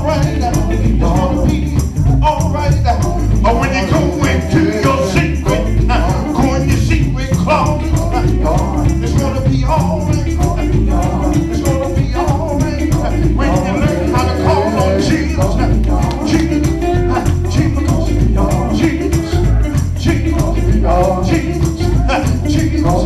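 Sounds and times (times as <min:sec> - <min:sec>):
gospel band playing: 0:00.0 - 0:23.0
man singing into microphone: 0:00.0 - 0:23.0
shaker percussion: 0:00.0 - 0:23.0.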